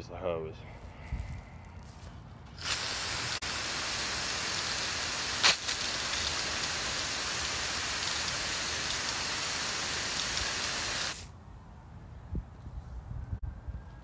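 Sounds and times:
garden hose spraying water: 2.6s - 11.3s.

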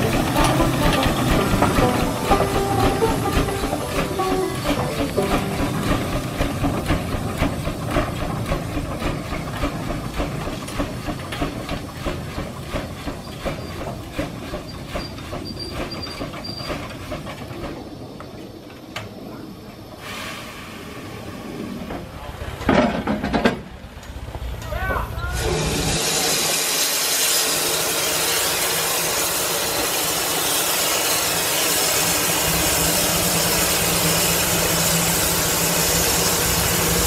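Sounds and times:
steam engine exhaust chuffing: 0.0s - 17.9s, 25.4s - 37.0s
steam hissing: 0.0s - 18.5s, 19.1s - 22.5s, 25.4s - 37.0s.

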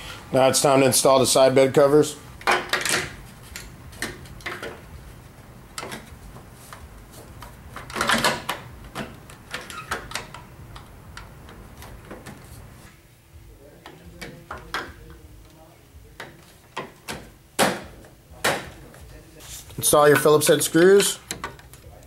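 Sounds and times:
plastic covers knocking and clicking: 7.4s - 10.9s.

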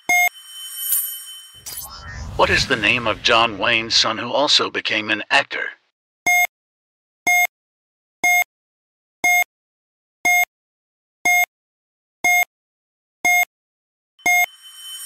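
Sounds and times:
short electronic beeps: 0.0s - 3.2s, 14.2s - 15.0s.

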